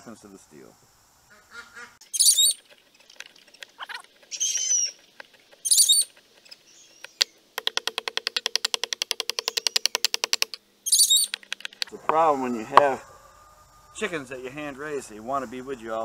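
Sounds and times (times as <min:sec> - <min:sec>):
chickens calling: 0:01.3 - 0:07.4, 0:09.4 - 0:16.0
blade chattering on wood: 0:02.2 - 0:11.9.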